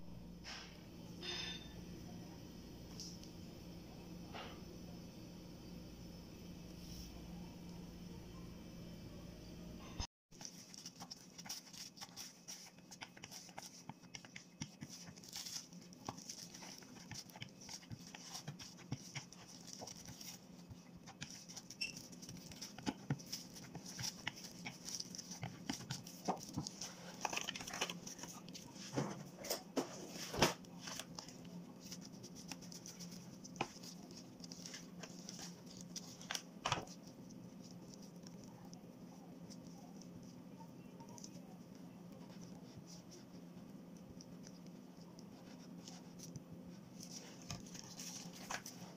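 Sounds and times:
faint steady hum: 0.0s - 48.9s
plastic gloves crinkling: 10.3s - 48.9s.

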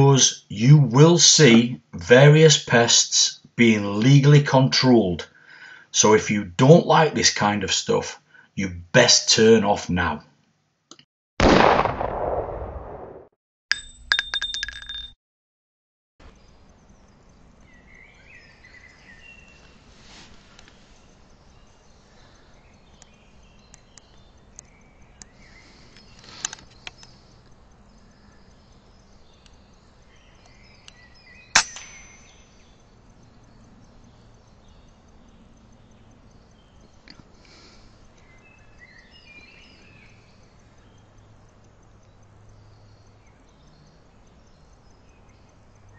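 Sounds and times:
air rifle shot: 11.4s - 13.3s, 31.6s - 32.4s
small birds chirping: 16.2s - 45.9s
faint clicks: 22.9s - 27.6s.

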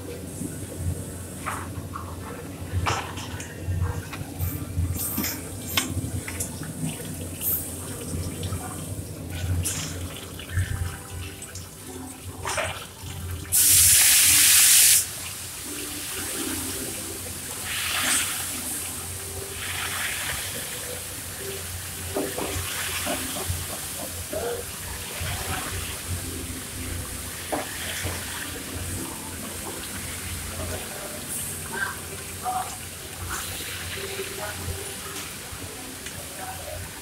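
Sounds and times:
loud hissing rush: 13.5s - 15.6s.

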